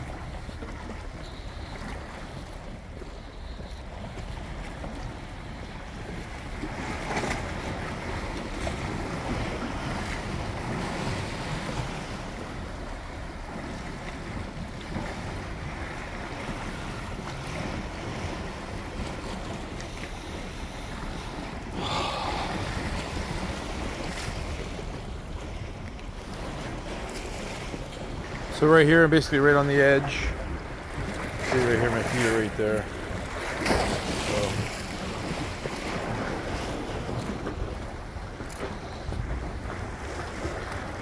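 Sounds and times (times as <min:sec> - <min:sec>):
wind buffeting microphone: 0:00.0 - 0:29.4
ocean waves washing against rocks: 0:00.0 - 0:41.0.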